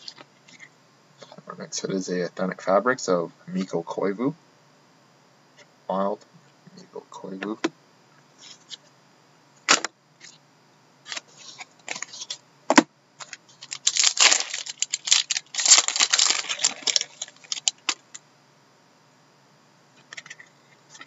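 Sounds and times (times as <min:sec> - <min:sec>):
packaging crackling rustle: 0:13.2 - 0:18.2.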